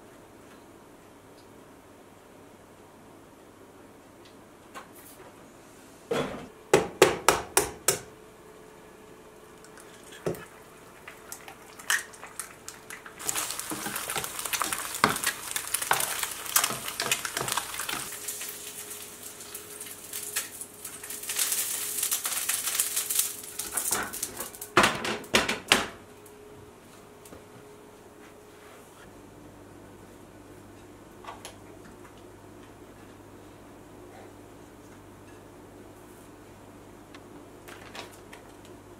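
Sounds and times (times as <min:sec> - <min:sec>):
eggs sizzling in oil: 0:09.7 - 0:24.8.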